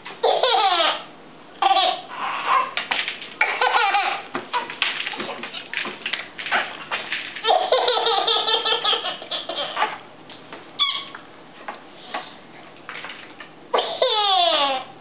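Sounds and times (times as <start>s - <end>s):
baby laughing: 0.2s - 5.5s, 7.4s - 10.1s, 13.7s - 14.9s
high squeak: 10.8s - 11.2s.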